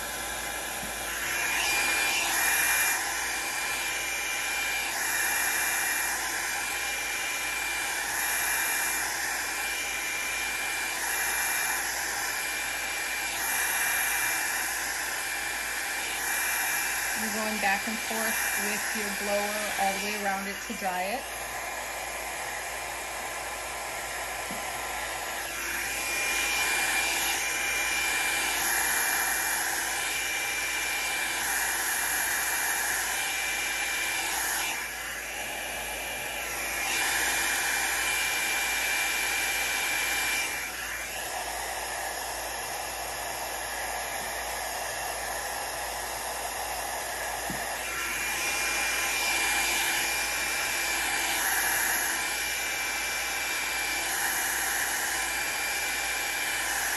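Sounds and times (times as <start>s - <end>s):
hair dryer blowing with whine: 0.0s - 56.9s.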